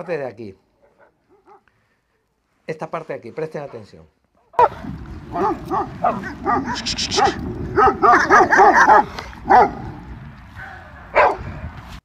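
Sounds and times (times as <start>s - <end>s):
dogs barking: 0.8s - 1.7s, 4.5s - 10.1s, 11.0s - 11.5s.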